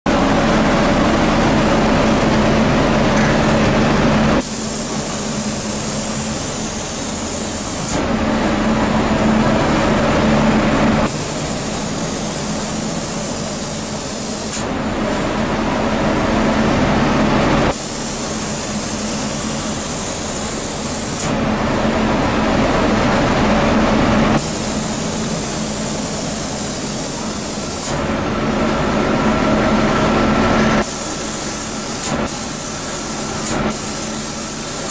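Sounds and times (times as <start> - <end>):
machine hum: 0.1 - 34.9
spray gun hissing: 4.4 - 8.0, 17.7 - 21.4, 24.4 - 28.0, 30.8 - 34.9.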